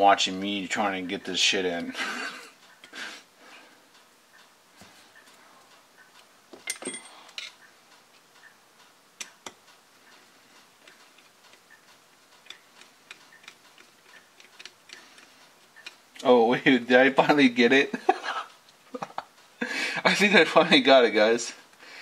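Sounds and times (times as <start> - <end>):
clicks and taps of small parts: 12.3 - 16.0.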